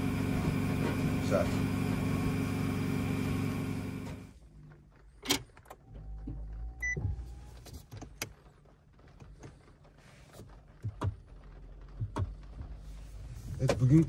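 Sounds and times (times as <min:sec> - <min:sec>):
steady machine hum: 0:00.0 - 0:04.3
low cabin hum: 0:00.0 - 0:14.0.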